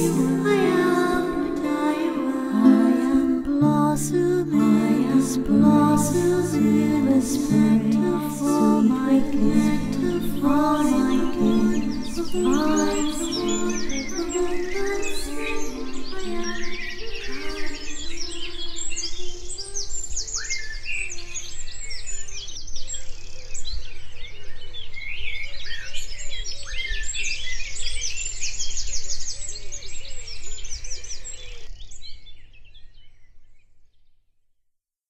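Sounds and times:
birds singing and chirping: 0:05.4 - 0:33.2.

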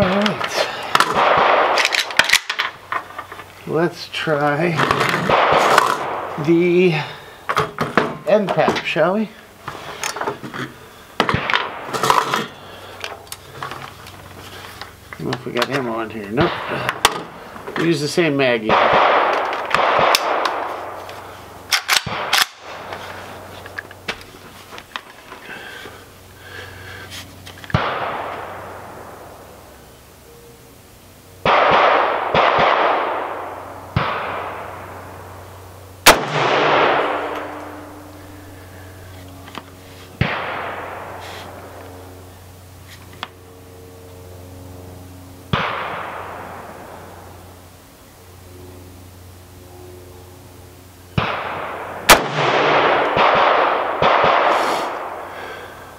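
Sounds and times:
rifle shots echoing: 0:00.0 - 0:02.6, 0:04.8 - 0:07.1, 0:11.2 - 0:12.6, 0:16.4 - 0:17.5, 0:18.6 - 0:23.5, 0:27.7 - 0:29.5, 0:31.4 - 0:35.4, 0:36.0 - 0:38.8, 0:40.2 - 0:41.8, 0:45.5 - 0:47.2, 0:51.2 - 0:55.3.

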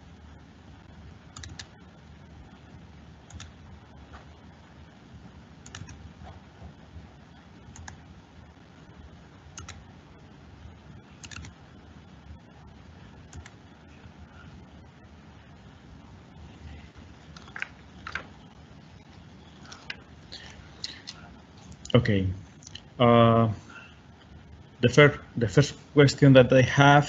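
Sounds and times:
low room noise: 0:00.0 - 0:27.0
computer mouse clicks: 0:01.4 - 0:01.7, 0:03.3 - 0:03.6, 0:05.6 - 0:06.0, 0:07.7 - 0:08.0, 0:09.6 - 0:09.8, 0:11.2 - 0:11.5, 0:13.3 - 0:13.6.

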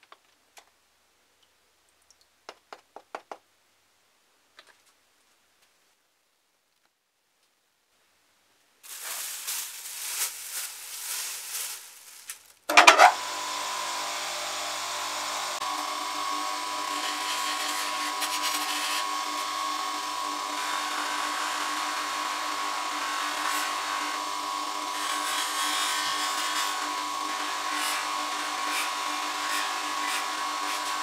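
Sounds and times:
plastic bag rustling: 0:08.8 - 0:13.1
polishing machine motor running: 0:12.7 - 0:31.0.

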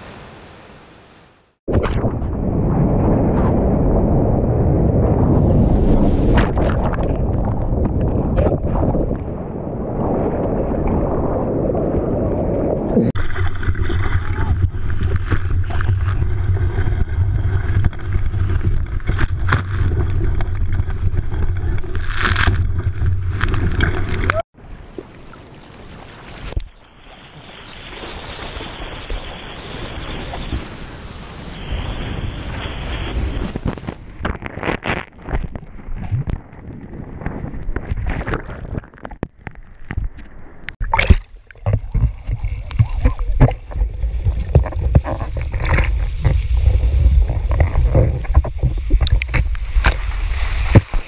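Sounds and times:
low rumble: 0:01.7 - 0:24.4, 0:41.4 - 0:50.5
wind on microphone: 0:01.7 - 0:24.4, 0:41.6 - 0:51.0
ocean water splashing: 0:05.2 - 0:51.0.

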